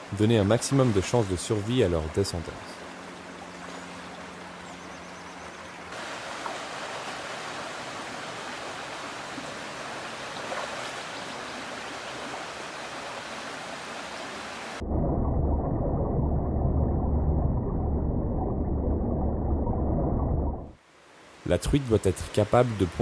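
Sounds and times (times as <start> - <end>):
river rushing over stones: 5.9 - 14.8
muffled underwater rumble: 14.8 - 20.8.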